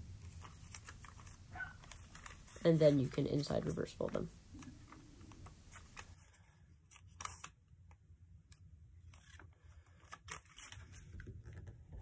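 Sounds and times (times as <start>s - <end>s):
paper crackles: 0.1s - 7.6s
paper crinkling and folding: 0.1s - 7.7s, 9.0s - 12.0s.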